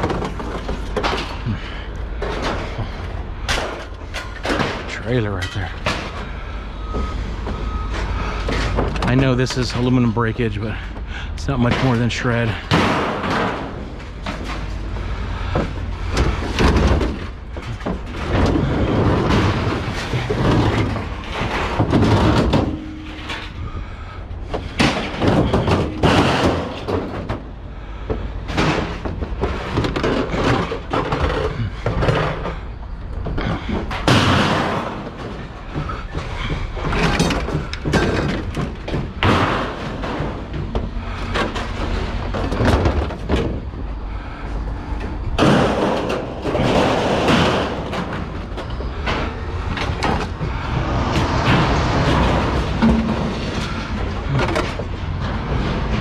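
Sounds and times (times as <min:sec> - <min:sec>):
scrap metal clanking and crashing: 0:00.0 - 0:56.0
steady low rumble: 0:35.1 - 0:56.0.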